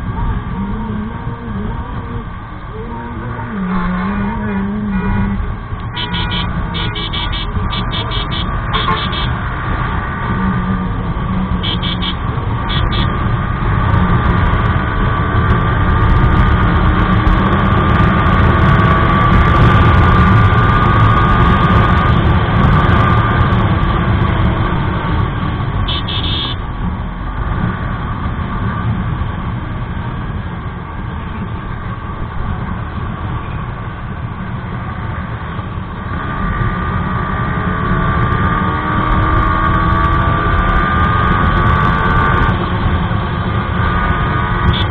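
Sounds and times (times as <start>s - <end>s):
short horn beeps: 4.9s - 9.3s, 11.6s - 13.1s, 25.9s - 26.6s.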